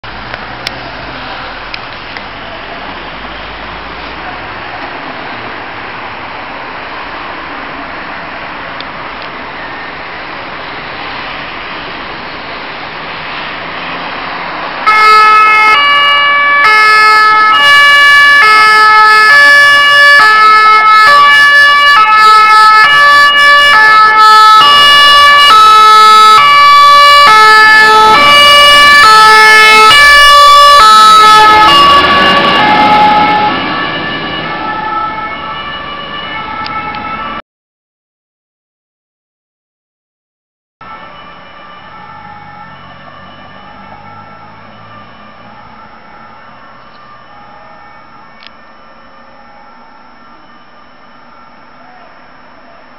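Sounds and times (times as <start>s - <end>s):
traffic rushing: 0.0s - 37.4s, 40.8s - 52.9s
fire engine two-tone siren: 8.0s - 37.4s, 40.8s - 52.9s.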